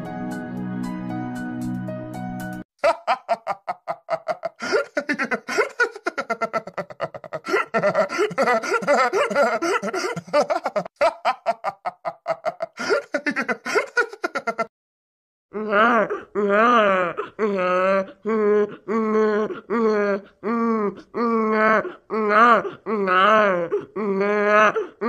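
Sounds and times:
cartoon character laughing: 2.8 - 14.7.

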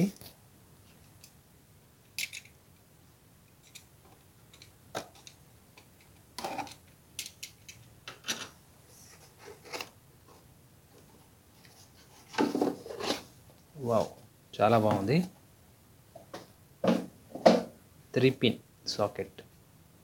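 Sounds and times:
cardboard rustling and scraping: 11.0 - 13.4.

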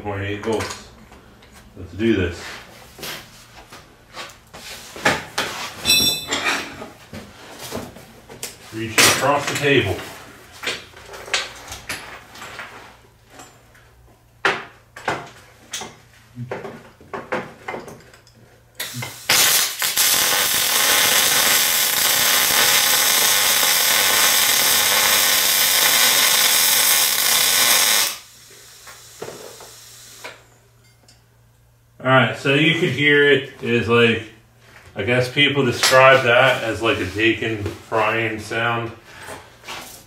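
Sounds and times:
welding arc crackling: 18.8 - 30.4.

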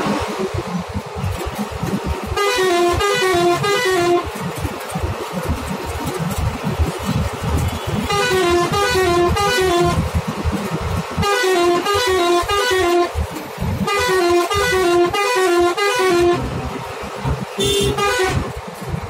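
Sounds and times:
low rumble of bus engine: 0.0 - 19.0
bus musical horn tune: 2.2 - 4.3, 7.7 - 10.1, 11.2 - 13.2, 13.8 - 16.7, 17.5 - 18.6.

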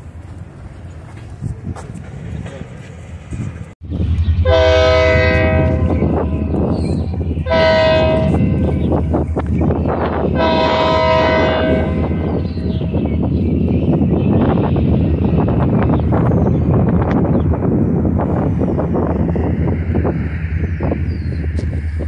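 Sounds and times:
locomotive low rumble: 0.0 - 22.0
locomotive air horn blasts: 4.4 - 6.7, 7.4 - 8.8, 10.4 - 12.3.

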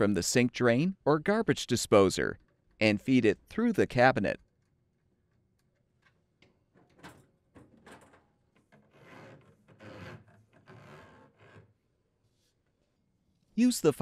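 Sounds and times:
plastic hose scraping against wood: 8.6 - 11.8.

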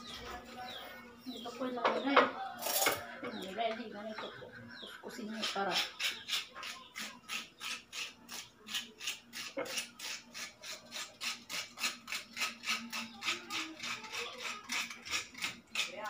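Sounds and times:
knife scraping food: 4.2 - 16.0.

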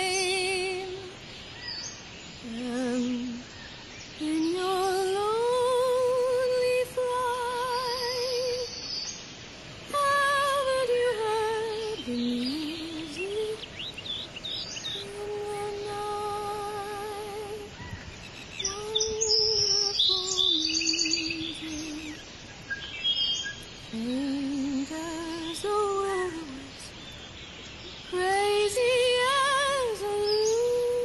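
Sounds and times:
woman humming a slow melody: 0.0 - 1.2, 2.4 - 3.6, 4.2 - 8.8, 9.9 - 13.9, 14.8 - 17.8, 18.6 - 22.2, 23.8 - 26.9, 28.1 - 31.0.

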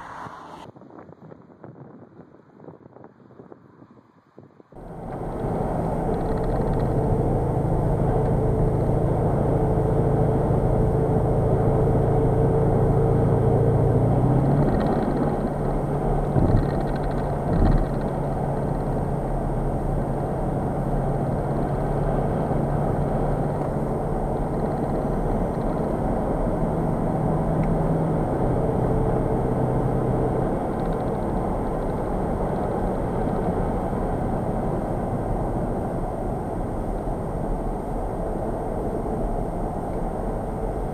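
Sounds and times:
diesel car engine cruising: 4.8 - 40.9
tyre and road noise: 4.8 - 40.9
short thumps: 16.4 - 18.0.

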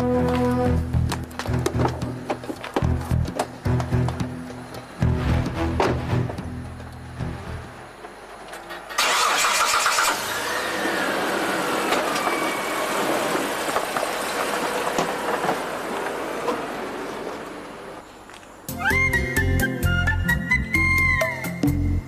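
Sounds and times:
car engine starting and running: 9.0 - 17.8.

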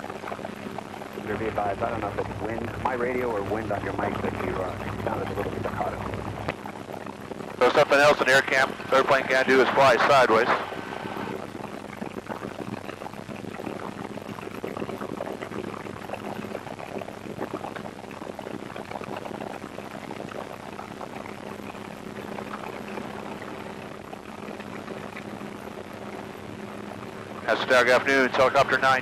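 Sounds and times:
helicopter rotor and engine hum: 1.2 - 6.5.

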